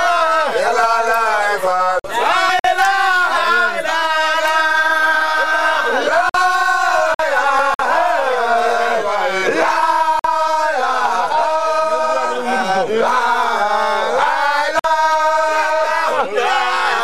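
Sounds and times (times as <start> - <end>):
men chanting in unison: 0.0 - 17.0.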